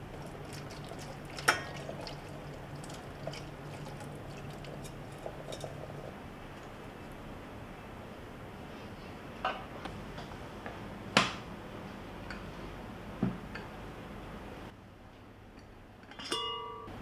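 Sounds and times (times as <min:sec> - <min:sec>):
water splashing and dripping: 0:00.0 - 0:06.8.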